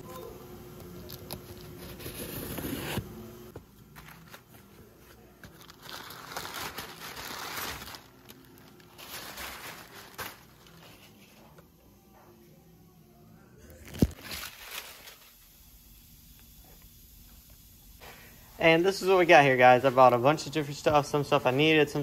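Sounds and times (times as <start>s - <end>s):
packing paper crinkling: 3.9s - 11.3s, 13.7s - 15.4s.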